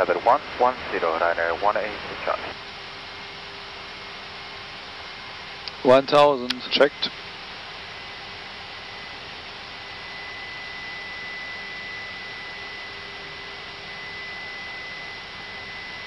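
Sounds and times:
steady cockpit hiss: 0.0s - 2.6s.

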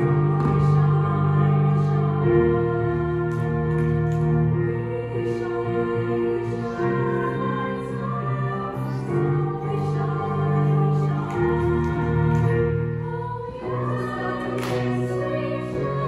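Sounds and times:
women's choir singing: 0.0s - 16.0s.

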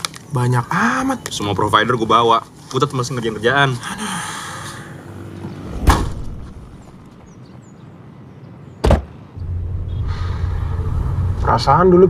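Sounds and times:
sharp thuds: 5.8s - 7.0s, 8.8s - 9.2s.

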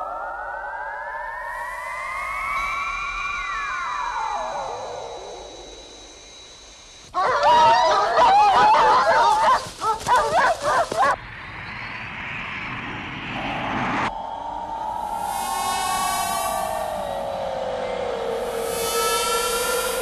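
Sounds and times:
dogs barking and yelping: 7.1s - 11.2s
low steady tone: 11.4s - 20.0s
steady rushing hiss: 14.1s - 20.0s.

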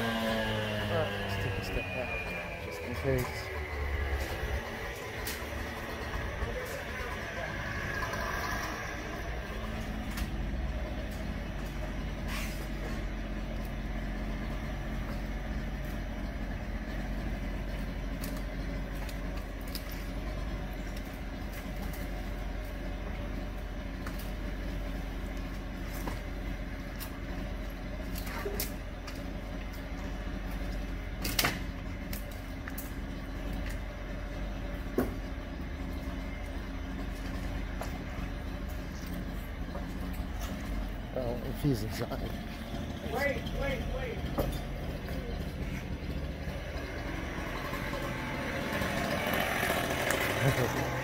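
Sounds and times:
demolition machinery engine running: 0.0s - 51.0s
sharp knocks and cracks: 17.8s - 22.8s, 28.0s - 33.9s.

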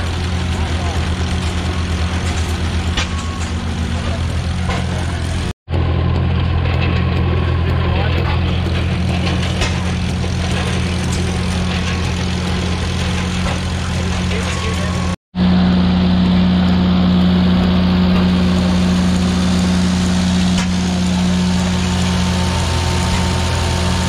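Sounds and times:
stationary engines running: 0.0s - 24.0s
people talking: 0.5s - 1.2s, 3.0s - 5.5s, 7.6s - 9.8s, 13.9s - 15.2s.

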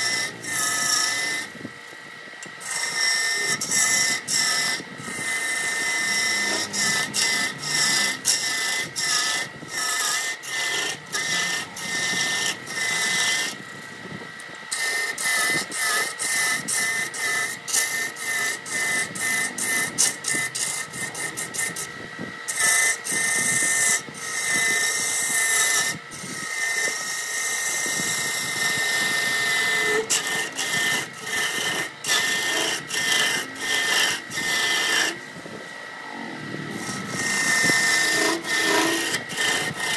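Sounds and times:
wood lathe whine: 0.0s - 39.9s
gouge rasping on wood: 2.6s - 13.6s, 14.8s - 21.9s, 26.6s - 35.2s, 36.8s - 39.9s.

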